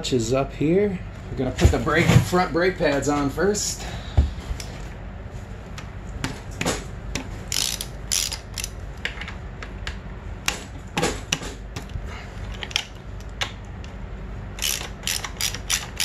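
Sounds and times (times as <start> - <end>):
ratchet wrench clicking: 7.5 - 8.8, 14.6 - 16.0.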